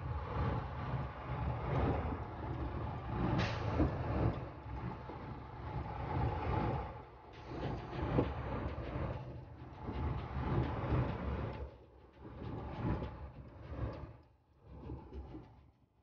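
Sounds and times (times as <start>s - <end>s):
engine and tyre rumble: 0.0s - 15.5s.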